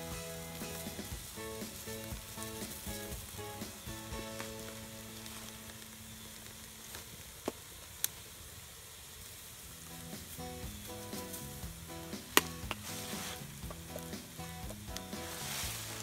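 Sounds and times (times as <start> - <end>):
meat sizzling: 0.0 - 16.0
sharp pops: 11.2 - 16.0.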